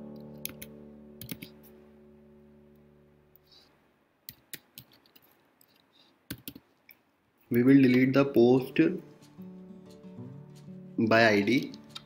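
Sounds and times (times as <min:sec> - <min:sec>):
held musical chord: 0:00.0 - 0:03.3
computer keyboard keys clicking: 0:00.5 - 0:01.5, 0:06.3 - 0:06.6.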